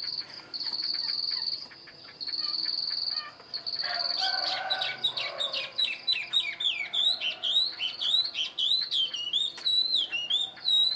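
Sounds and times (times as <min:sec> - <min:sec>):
bird singing whistles: 0:04.4 - 0:10.9.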